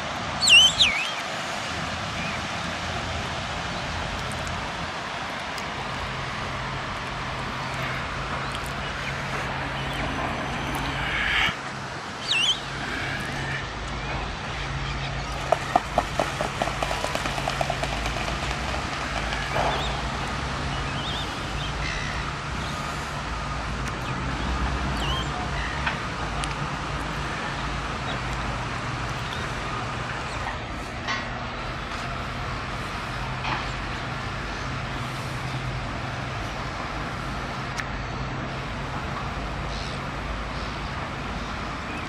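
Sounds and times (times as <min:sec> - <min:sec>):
high rising bird calls: 0:00.4 - 0:01.2, 0:08.8 - 0:15.1
feet and wings slapping water: 0:15.2 - 0:20.4.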